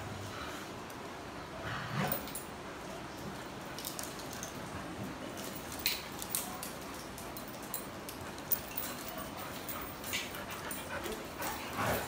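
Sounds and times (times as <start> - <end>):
dog claws clicking on tiles: 3.7 - 4.7
collar and leash jingling: 5.3 - 12.0.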